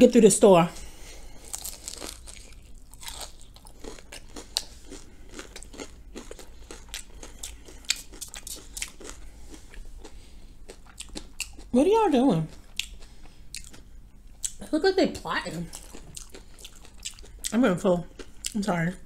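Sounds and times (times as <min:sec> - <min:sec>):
crisp chewing crunches: 0:01.4 - 0:11.7, 0:12.5 - 0:13.8, 0:15.7 - 0:18.6.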